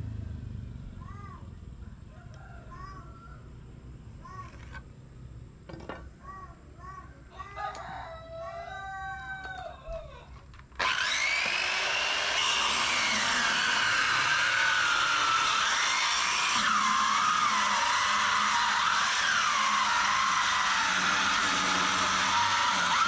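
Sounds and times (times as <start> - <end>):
rooster crowing: 1.8 - 3.6, 7.3 - 10.3
electric power tool whining: 10.7 - 23.0.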